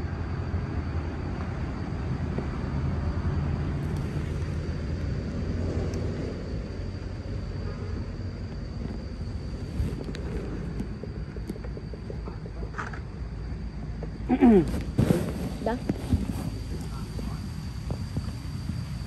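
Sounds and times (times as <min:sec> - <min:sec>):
faint steady whine: 0:00.0 - 0:19.0
wind noise: 0:00.0 - 0:19.0
motorbike engine rumble: 0:01.0 - 0:19.0
clothing rubbing microphone: 0:09.4 - 0:12.1, 0:14.4 - 0:19.0.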